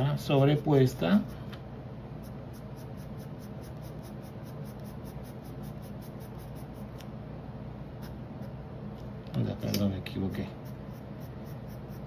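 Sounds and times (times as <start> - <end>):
pencil scratching on paper: 2.2 - 7.0, 10.4 - 12.0.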